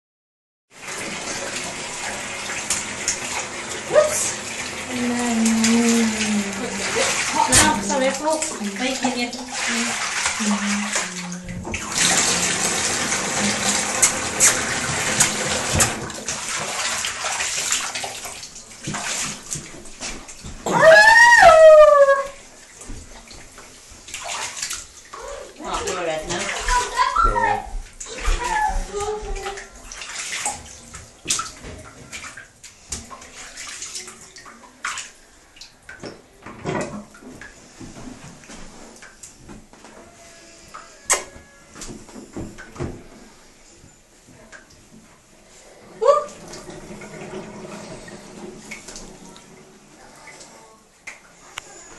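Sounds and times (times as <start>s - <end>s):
bathwater splashing: 0.7s - 51.9s.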